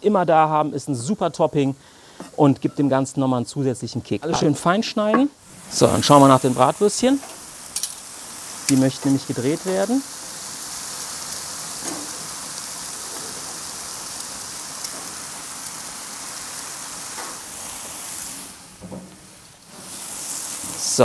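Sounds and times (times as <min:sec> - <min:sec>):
sausages sizzling on a grill: 0:05.4 - 0:21.0.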